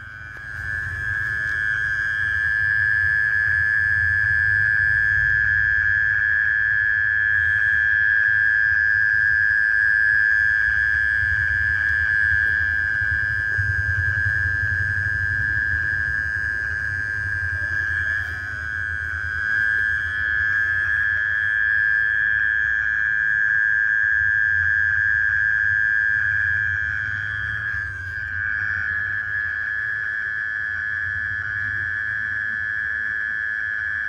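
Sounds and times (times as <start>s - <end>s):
low rumble: 0.0s - 5.6s, 10.8s - 22.2s
insect high-pitched trill: 0.0s - 34.0s.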